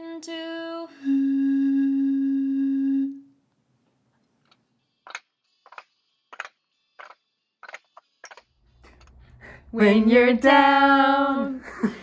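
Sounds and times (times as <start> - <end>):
hooting note blown across bottle: 0.9 - 3.3.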